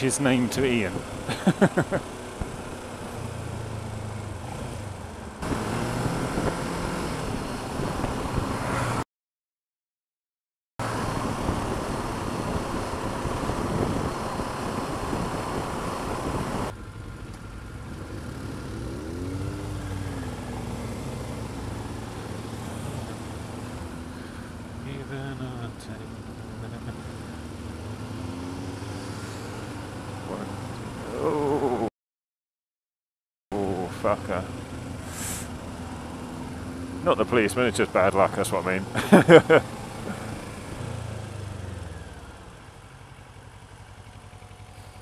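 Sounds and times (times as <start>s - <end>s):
wind and road noise: 0.0s - 9.1s, 10.8s - 31.9s, 33.5s - 45.0s
motorcycle engine running: 0.2s - 8.6s, 10.8s - 31.8s, 33.6s - 45.0s.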